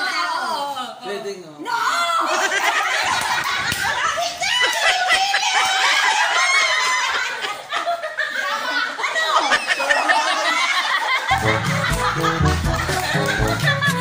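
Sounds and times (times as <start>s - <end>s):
woman laughing: 2.3s - 14.0s
music with steady beat: 11.3s - 14.0s.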